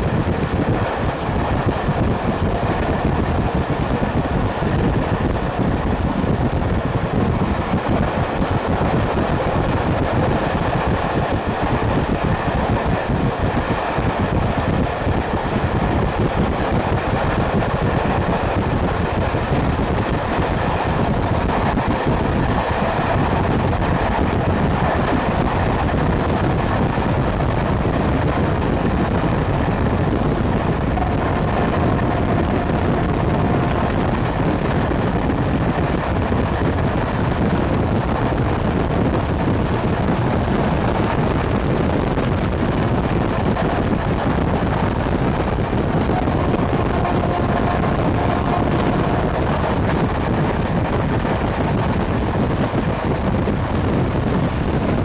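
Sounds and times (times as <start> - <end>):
train wheels rumbling on rails: 0.0 - 55.0
wind buffeting microphone: 0.0 - 55.0
faint whine: 45.0 - 50.2.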